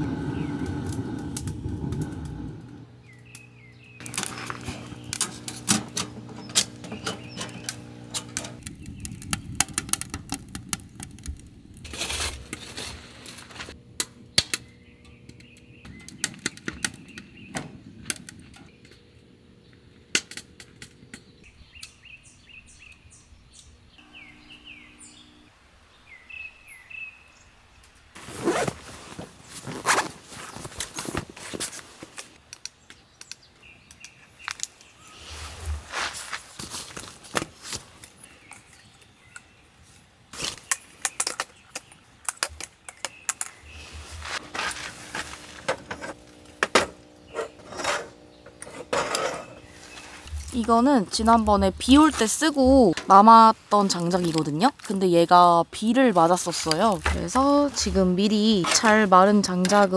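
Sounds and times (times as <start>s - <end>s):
birds chirping: 0.0s - 9.7s, 14.2s - 20.1s, 21.0s - 28.0s, 46.1s - 59.9s
rustling and handling noise: 28.2s - 32.6s, 34.4s - 39.1s, 39.8s - 55.2s.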